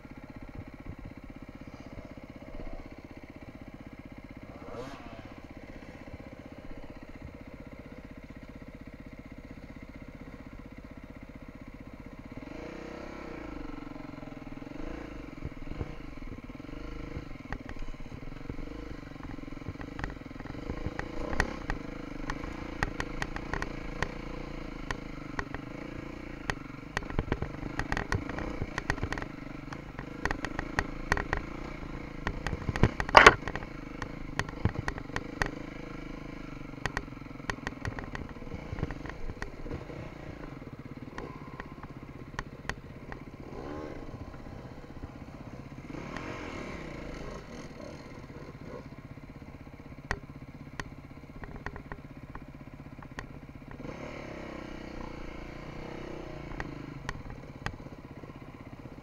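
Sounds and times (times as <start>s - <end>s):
motorcycle engine idling and revving: 0.0s - 59.0s
bike knocks and rattles: 32.2s - 35.6s.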